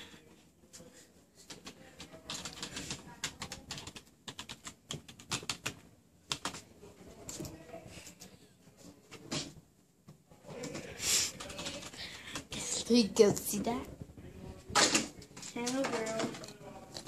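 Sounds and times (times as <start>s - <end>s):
computer keyboard typing: 1.4s - 6.6s, 10.6s - 12.6s.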